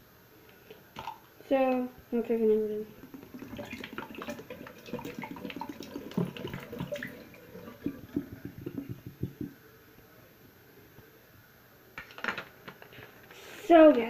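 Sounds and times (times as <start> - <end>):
water drips: 0.7 - 9.6
water splashing into sink: 1.0 - 1.2, 2.5 - 9.6.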